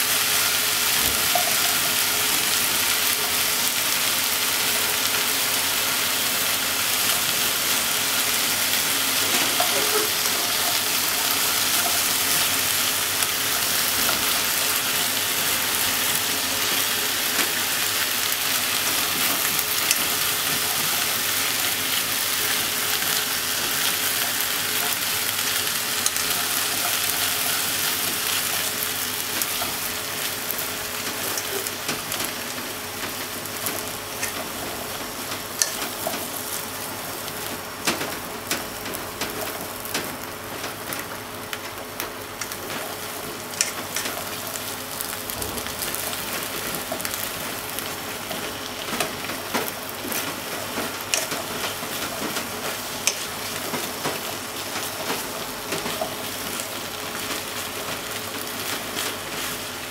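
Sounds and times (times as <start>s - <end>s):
onions and potatoes sizzling in pot: 0.0s - 59.9s.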